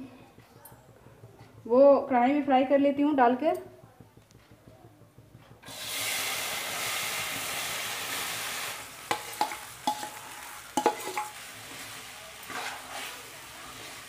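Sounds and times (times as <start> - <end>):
food sizzling in hot oil: 5.6 - 14.0
spoon clinking on metal plate: 9.1 - 11.4.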